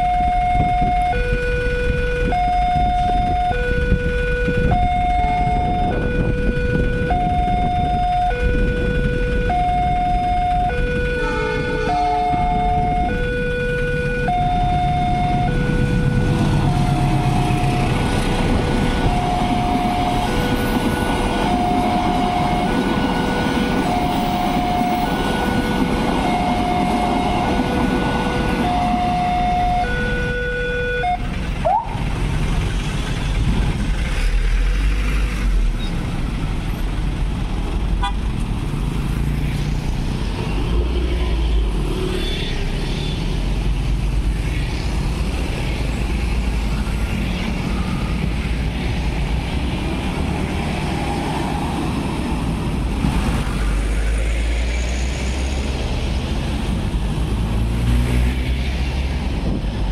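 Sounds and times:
level crossing alarm two-tone: 0.0s - 18.0s, 18.7s - 31.9s
road traffic moving off: 0.0s - 59.9s
passenger train rumbling past: 1.8s - 59.9s.

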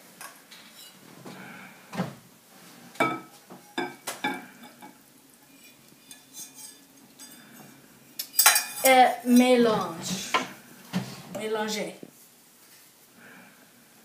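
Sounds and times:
metal spoon scraping saucepan: 0.7s - 1.0s, 3.6s - 10.3s.

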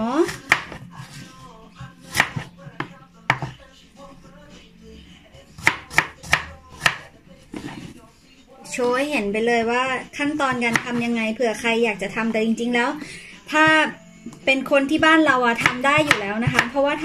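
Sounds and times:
knife chopping on cutting board: 0.2s - 3.6s, 5.6s - 7.9s, 10.4s - 11.1s, 15.0s - 17.0s.

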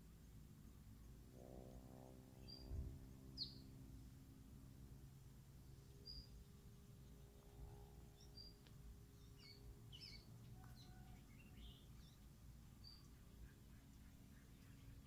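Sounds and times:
songbird chirps: 2.4s - 3.8s, 5.6s - 15.0s.

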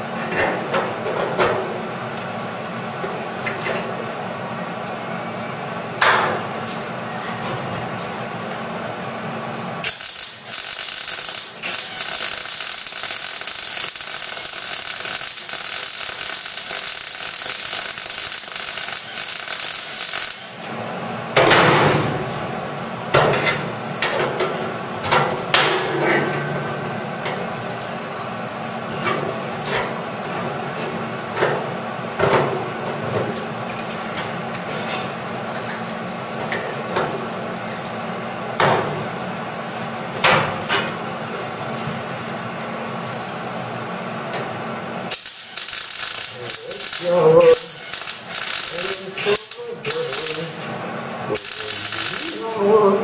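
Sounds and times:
welder arc crackling: 9.8s - 20.7s, 45.1s - 52.6s
short sharp welding bursts: 9.8s - 20.8s, 45.1s - 52.5s.

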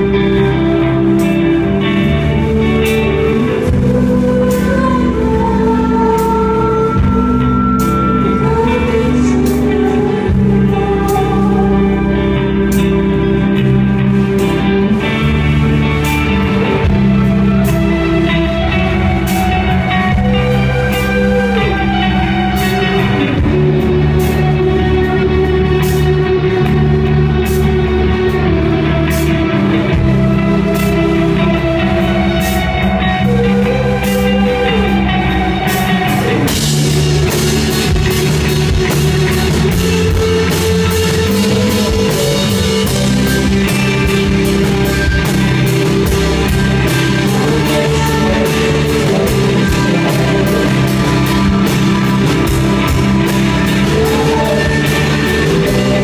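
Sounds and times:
electric guitars ringing: 0.0s - 56.0s
drums with cymbal hits: 35.6s - 56.0s.

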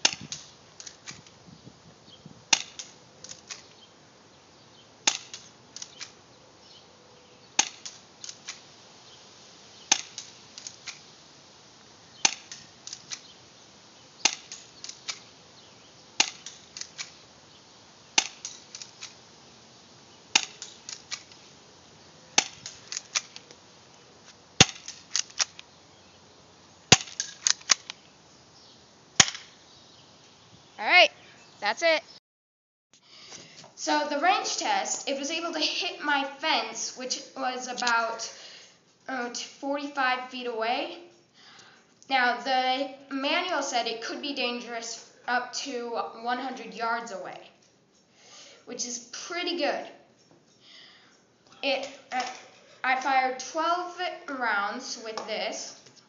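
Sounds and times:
spring pistol shot snapping: 0.0s - 1.3s, 2.5s - 3.7s, 5.0s - 6.2s, 7.6s - 8.6s, 9.9s - 11.0s, 12.2s - 13.4s, 14.2s - 15.3s, 16.2s - 17.2s, 18.2s - 19.2s, 20.3s - 21.4s, 22.4s - 23.6s, 24.6s - 25.7s, 26.9s - 28.0s, 29.2s - 29.6s.

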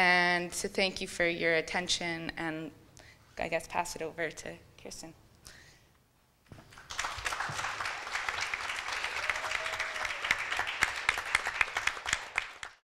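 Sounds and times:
audience applauding: 6.7s - 12.8s.

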